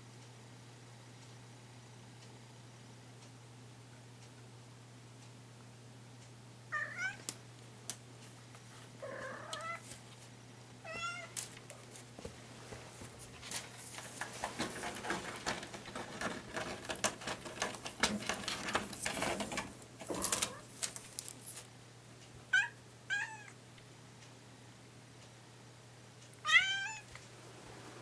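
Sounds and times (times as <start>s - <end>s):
bamboo blind rattling: 13.3s - 21.6s
kitten meowing: 26.4s - 27.0s.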